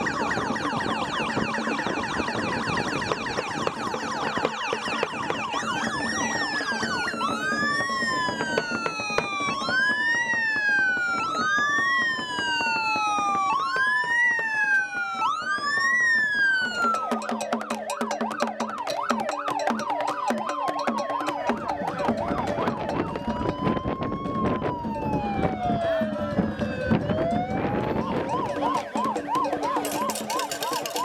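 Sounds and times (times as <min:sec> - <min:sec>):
siren fast warble: 0:00.0 - 0:31.0
vehicle siren wailing: 0:00.0 - 0:31.0
rapid clicking: 0:28.6 - 0:31.0.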